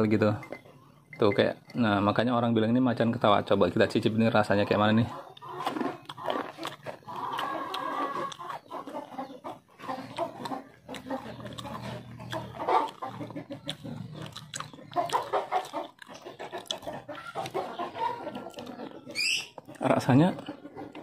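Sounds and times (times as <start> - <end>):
mouth noises: 0.0 - 21.0
cookie chewing crunches: 5.3 - 8.7, 9.8 - 17.6.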